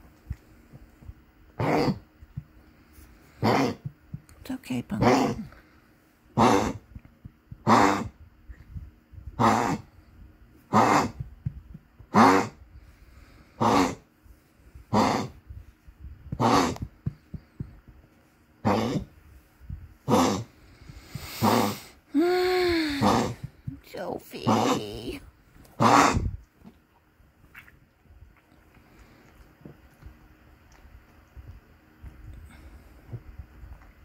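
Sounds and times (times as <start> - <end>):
small dog coughing: 6.4 - 6.8, 7.6 - 8.2, 10.7 - 11.2, 16.4 - 16.9, 18.6 - 19.1, 25.8 - 26.3.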